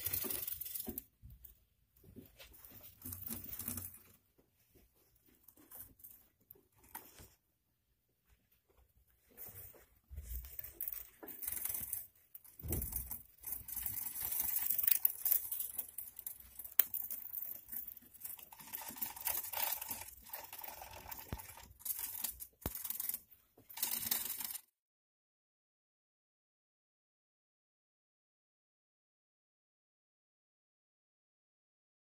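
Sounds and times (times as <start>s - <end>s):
gerbils rustling through bedding: 0.0s - 7.4s, 8.2s - 24.6s.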